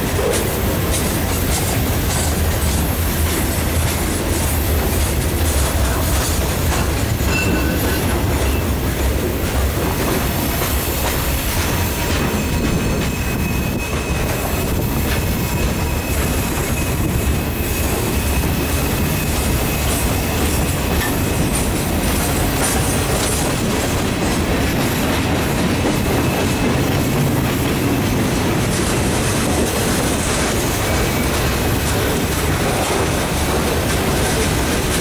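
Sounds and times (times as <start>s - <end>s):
freight train wheels rumbling on rails: 0.0s - 35.0s
high wheel squeal: 10.3s - 21.8s, 25.9s - 28.2s, 30.1s - 32.1s.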